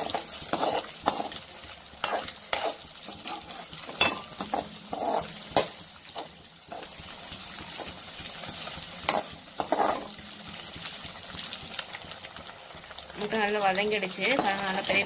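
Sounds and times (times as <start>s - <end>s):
spatula scraping and knocking pan: 0.0s - 11.5s
eggs sizzling in hot oil: 0.0s - 15.0s.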